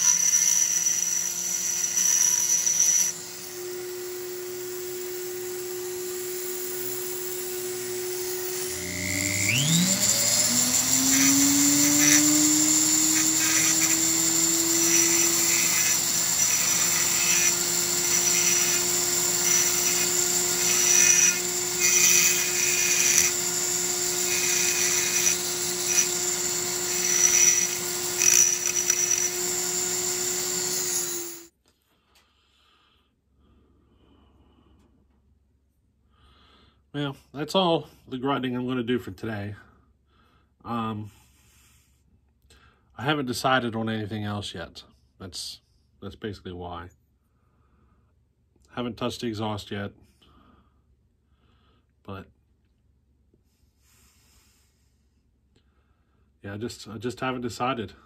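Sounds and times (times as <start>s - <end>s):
rotary tool grinding metal: 0.0s - 31.5s.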